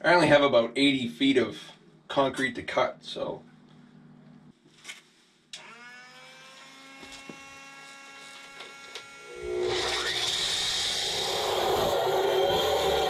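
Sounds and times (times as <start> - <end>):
concrete saw motor whine: 5.6 - 13.0.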